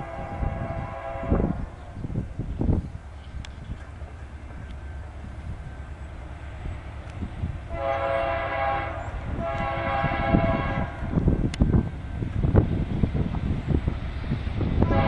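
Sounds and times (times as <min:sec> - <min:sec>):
locomotive air horn blasts: 0:00.0 - 0:01.7, 0:07.7 - 0:11.1, 0:14.8 - 0:15.0.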